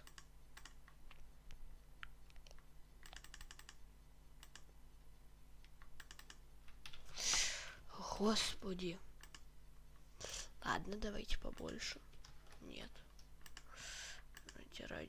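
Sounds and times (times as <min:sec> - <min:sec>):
keyboard and mouse clicks: 0:00.0 - 0:03.8, 0:04.4 - 0:04.7, 0:05.6 - 0:07.1, 0:09.2 - 0:09.5, 0:11.4 - 0:13.7, 0:14.3 - 0:14.7
loud breath out: 0:07.1 - 0:07.8.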